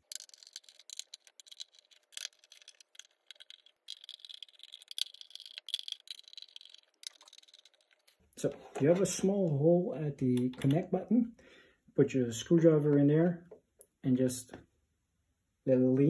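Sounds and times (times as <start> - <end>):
screwdriver clicks and rattles: 0.0 - 8.2.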